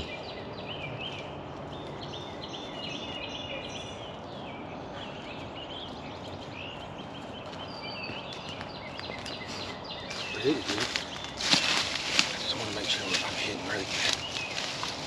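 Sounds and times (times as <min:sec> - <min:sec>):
songbirds chirping and trilling: 0:00.0 - 0:15.0.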